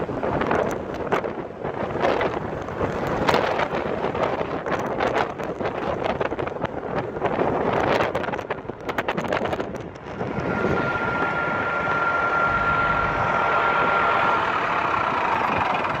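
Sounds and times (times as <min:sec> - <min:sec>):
traffic rumble: 0:00.0 - 0:16.0
wind buffeting microphone: 0:00.0 - 0:16.0
thin high whine: 0:10.3 - 0:16.0.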